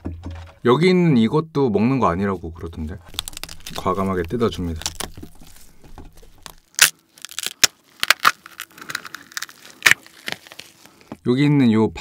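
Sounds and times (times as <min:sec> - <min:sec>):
crab shell cracking: 0:03.0 - 0:11.2
shell and meat tearing: 0:03.0 - 0:11.2.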